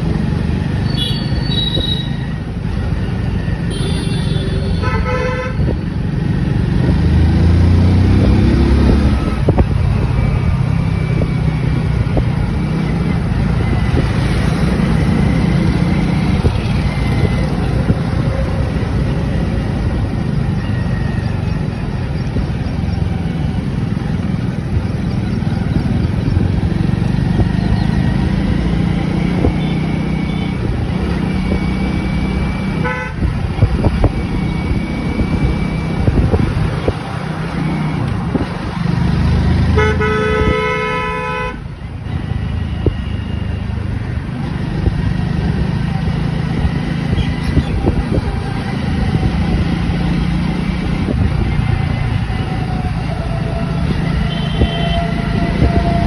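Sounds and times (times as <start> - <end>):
road noise: 0.0 - 56.0
vehicle horn honking: 0.9 - 2.2, 3.7 - 5.7, 32.8 - 33.3, 39.8 - 41.7, 54.2 - 55.7.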